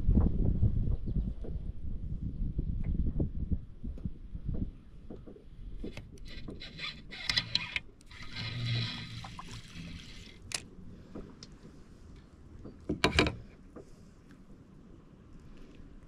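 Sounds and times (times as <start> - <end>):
water sloshing against kayak hull: 8.0 - 12.0.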